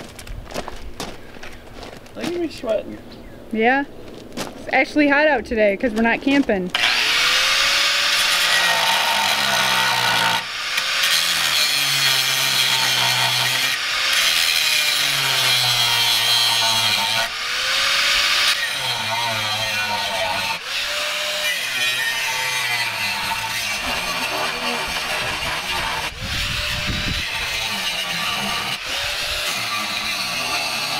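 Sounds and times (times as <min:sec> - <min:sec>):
power tool motor whining: 0:06.7 - 0:30.9.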